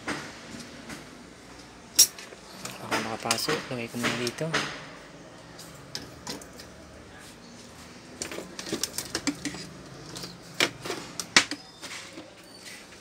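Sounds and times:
objects handled on a workbench: 0:05.6 - 0:13.0.

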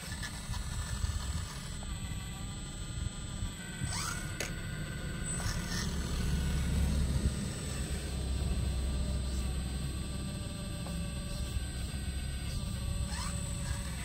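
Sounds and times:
toy excavator motors whining: 0:00.0 - 0:14.0.

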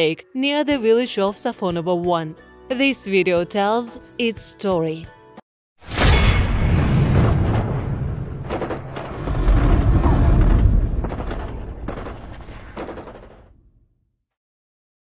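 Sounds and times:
sharp explosion blasts: 0:05.8 - 0:13.7
deep heavy rumble: 0:06.4 - 0:13.5
gunfire: 0:10.0 - 0:13.6.

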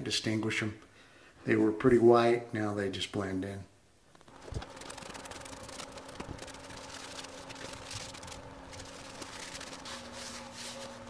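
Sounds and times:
faint steady hum: 0:00.0 - 0:11.0
cloth rag rubbing: 0:04.3 - 0:11.0.

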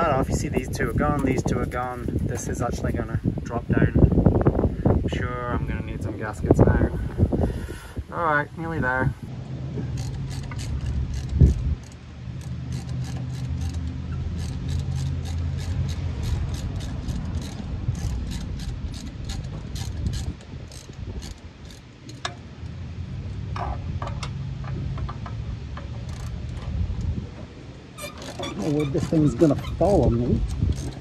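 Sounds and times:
steady low hum: 0:00.0 - 0:31.0
socket ratchet clicking: 0:09.9 - 0:22.4, 0:28.0 - 0:31.0.

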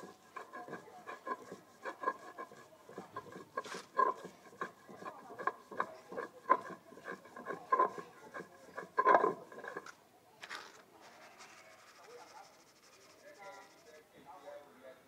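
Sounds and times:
stone grinding seeds: 0:00.0 - 0:10.0.

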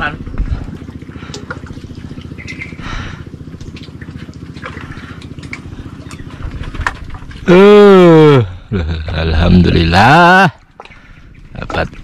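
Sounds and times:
small engine puttering: 0:00.0 - 0:08.4.

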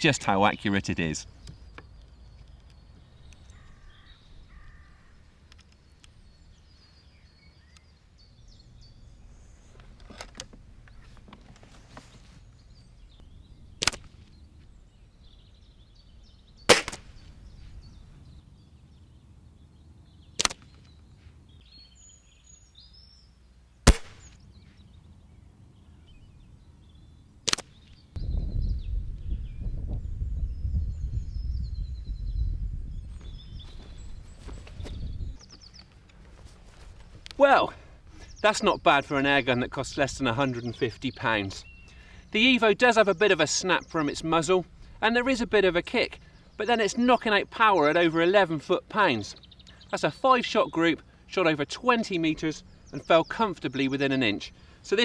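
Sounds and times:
air rifle firing snaps: 0:13.8 - 0:14.2, 0:16.7 - 0:17.2, 0:20.4 - 0:20.8, 0:23.8 - 0:24.4, 0:27.4 - 0:27.9.

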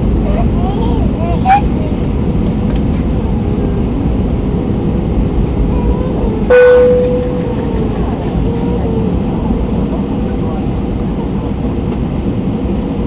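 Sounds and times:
airliner cabin rumble: 0:00.0 - 0:13.0
loud chime tone: 0:06.5 - 0:07.8.

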